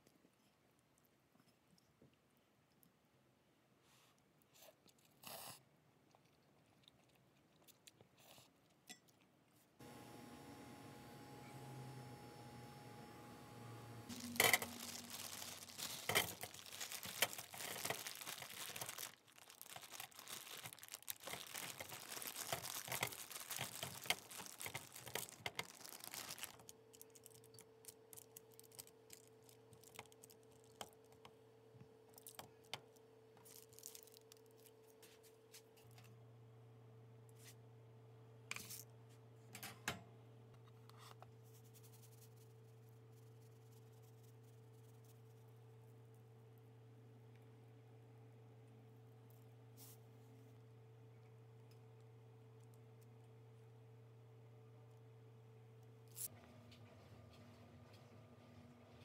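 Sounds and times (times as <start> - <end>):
steady low hum: 9.8 - 16.2
frozen food clattering on baking sheet: 14.1 - 26.7
plastic bag crinkling and tearing: 14.1 - 30.9, 33.4 - 34.7.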